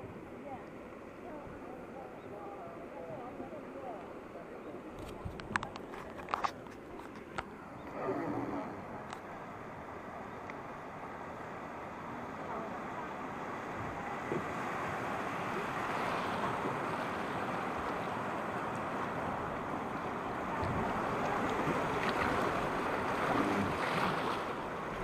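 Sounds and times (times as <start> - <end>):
river rapids rushing: 7.6 - 25.0.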